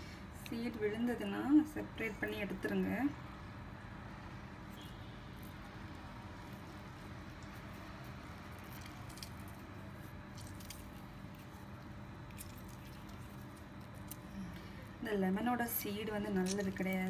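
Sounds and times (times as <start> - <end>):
lemon pulp squishing: 5.4 - 15.0, 15.6 - 17.0.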